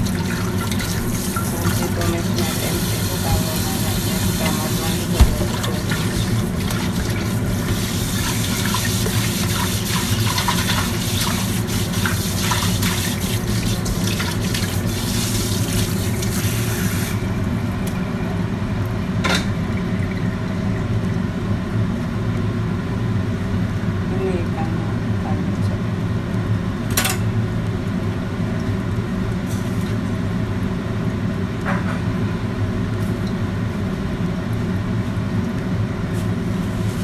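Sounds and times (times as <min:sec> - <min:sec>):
tap water running into a wok: 0:00.0 - 0:18.0
steady low hum: 0:00.0 - 0:37.0.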